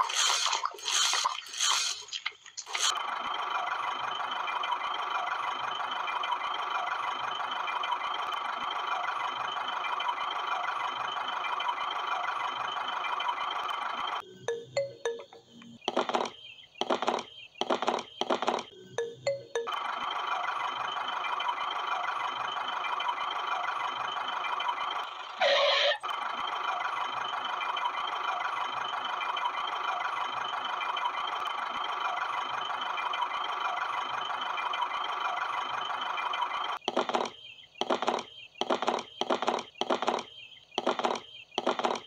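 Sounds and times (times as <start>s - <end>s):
toy electric motor whirring: 0.0s - 3.2s
brief squeal: 25.4s - 26.0s.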